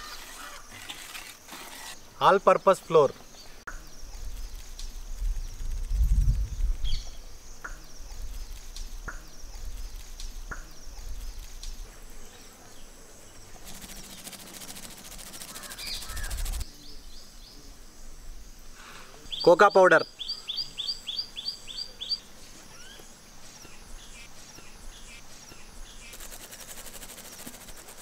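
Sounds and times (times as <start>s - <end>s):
wind rumble on microphone: 4.0s - 7.2s
birds calling: 6.8s - 17.3s
rapid fine ticking: 13.6s - 16.6s, 26.0s - 28.0s.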